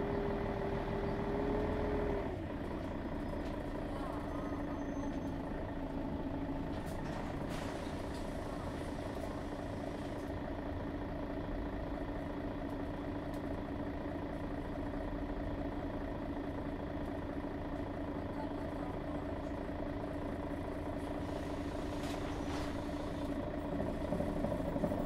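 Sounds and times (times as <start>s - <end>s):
diesel bus engine running: 0.0s - 25.0s.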